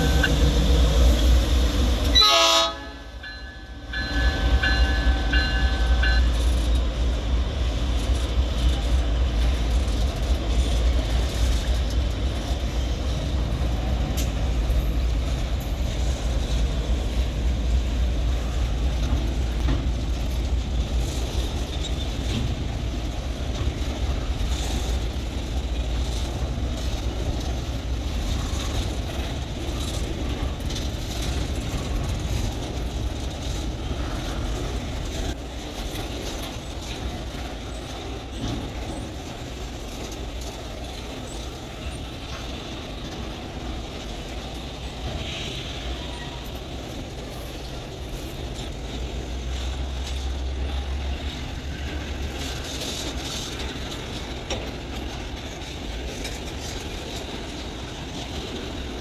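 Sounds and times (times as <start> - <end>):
freight train rumbling past: 0.0 - 59.0
locomotive air horn: 2.1 - 3.2.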